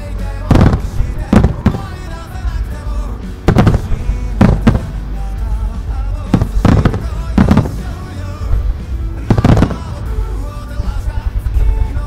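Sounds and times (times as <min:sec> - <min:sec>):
pop song playing: 0:00.0 - 0:12.0
firework shells booming: 0:00.5 - 0:02.1, 0:03.5 - 0:05.0, 0:06.3 - 0:08.0, 0:09.3 - 0:10.1.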